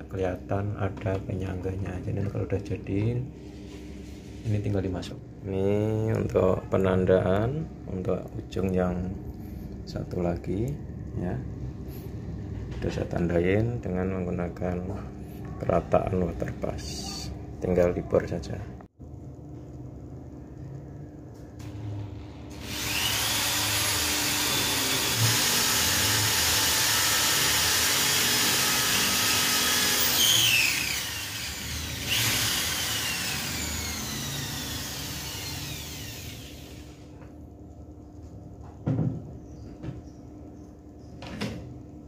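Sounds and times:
electric drill boring into wall: 0:22.5 - 0:37.0.

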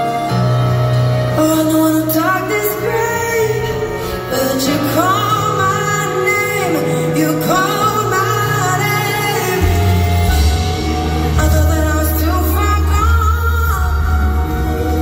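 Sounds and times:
live band playing: 0:00.0 - 0:15.0
woman singing: 0:01.3 - 0:15.0
bass line: 0:07.3 - 0:15.0.

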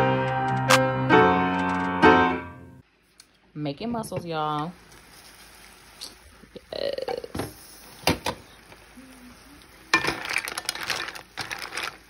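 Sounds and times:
mussel shells clattering in a pot: 0:09.9 - 0:12.0.

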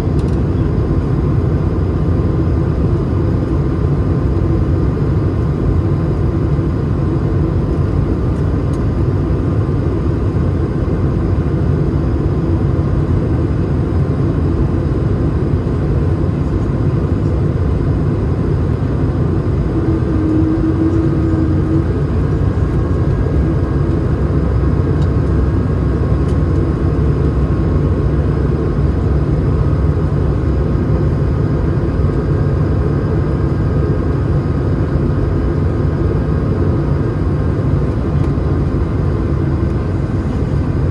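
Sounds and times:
airplane cabin engine rumble: 0:00.0 - 0:40.9
engine tones: 0:19.5 - 0:24.1.

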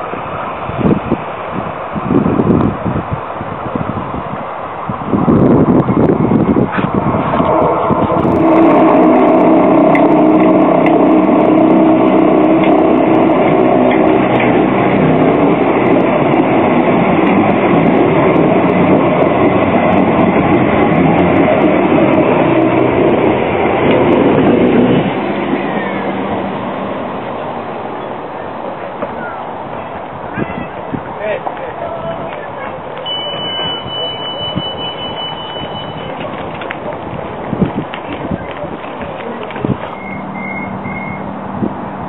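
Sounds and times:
tram wheels rolling on rails: 0:00.0 - 0:42.0
electric hum: 0:08.2 - 0:25.2.

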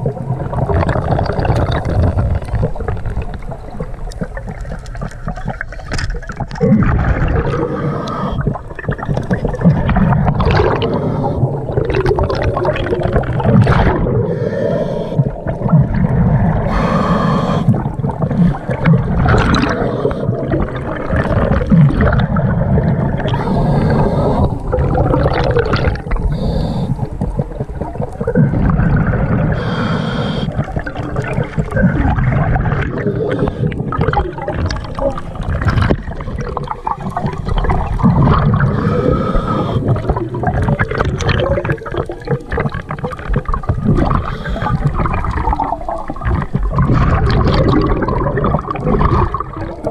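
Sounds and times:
bubbling exhalations: 0:00.0 - 0:49.9
regulator hissing inhale: 0:07.6 - 0:08.6, 0:10.8 - 0:11.6, 0:14.2 - 0:15.4, 0:16.6 - 0:18.6, 0:19.7 - 0:20.4, 0:23.3 - 0:24.7, 0:26.1 - 0:27.3, 0:29.5 - 0:30.7, 0:33.2 - 0:33.9, 0:38.7 - 0:40.0, 0:44.2 - 0:44.9.

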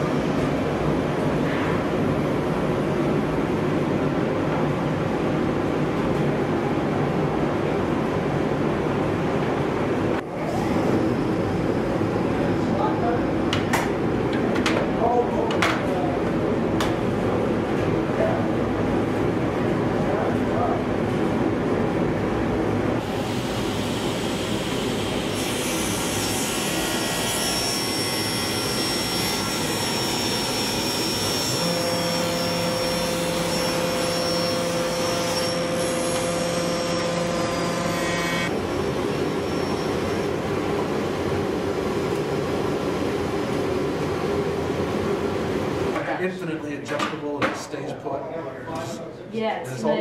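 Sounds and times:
table saw drone: 0:23.0 - 0:40.4.

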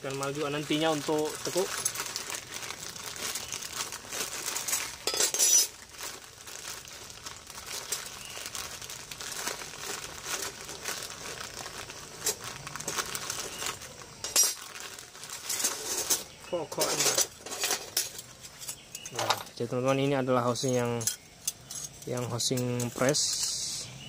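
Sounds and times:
plastic bag crinkling: 0:00.0 - 0:23.8
metal plates clinking: 0:04.6 - 0:05.8, 0:15.4 - 0:19.6.

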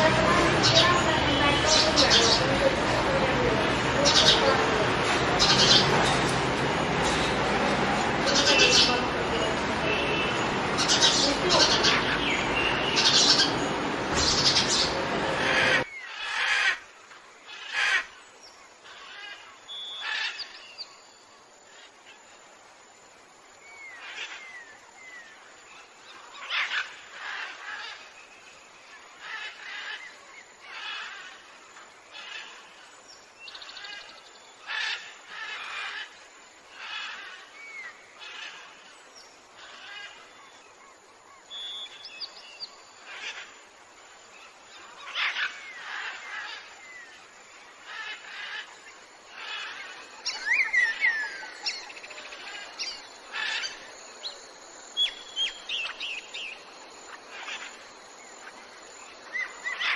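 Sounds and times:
birds chirping and calling: 0:00.0 - 0:16.9, 0:41.4 - 0:59.9.

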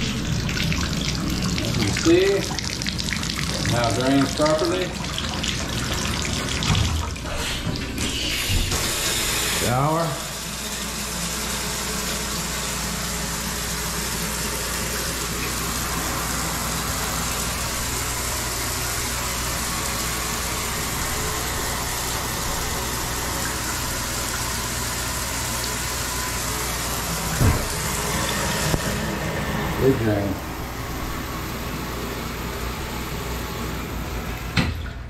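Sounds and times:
shower water spraying: 0:00.0 - 0:34.6.

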